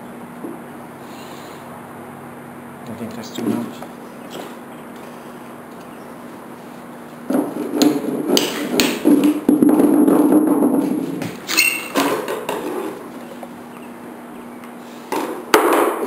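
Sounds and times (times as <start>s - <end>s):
short metallic ring: 11.5s - 12.0s.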